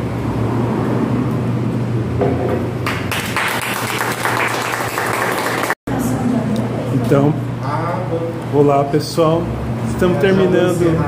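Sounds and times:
small group clapping: 2.8s - 5.8s.

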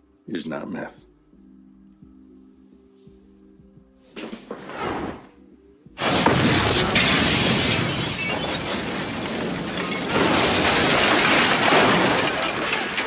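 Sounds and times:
debris crashing down: 6.0s - 13.0s
explosion: 6.0s - 13.0s
glass shattering: 6.0s - 13.0s.

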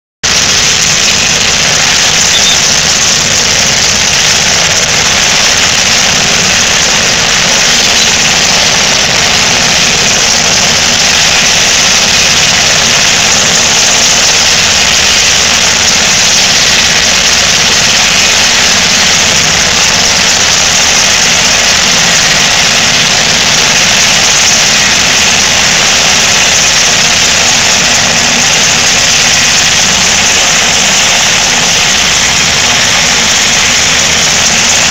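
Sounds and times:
helicopter engines and rotor: 0.2s - 34.9s.

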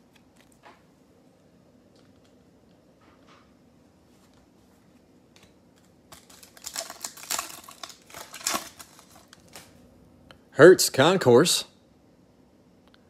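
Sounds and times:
foil wrapper crinkling and tearing: 6.1s - 9.8s.

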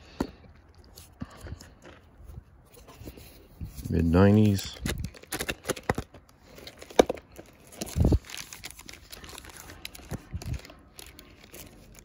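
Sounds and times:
paper and plastic sheets rustling: 2.7s - 12.0s.

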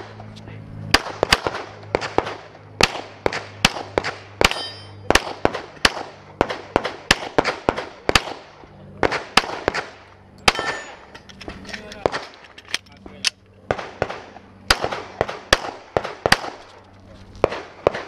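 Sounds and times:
pistol shots with echo: 0.9s - 11.1s, 13.7s - 16.7s, 17.4s - 18.0s.

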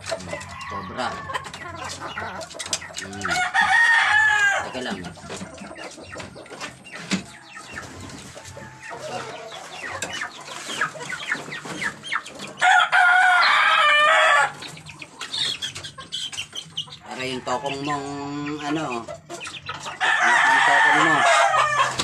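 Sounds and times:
wooden coops knocking: 0.0s - 12.8s, 20.0s - 22.0s
chicken clucking: 0.0s - 22.0s
rooster crowing: 3.4s - 4.7s, 12.6s - 14.6s, 20.0s - 22.0s.

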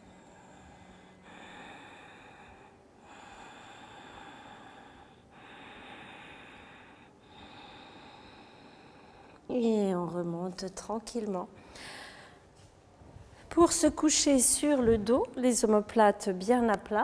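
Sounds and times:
deep breathing through nose: 0.0s - 9.4s, 11.6s - 12.6s.

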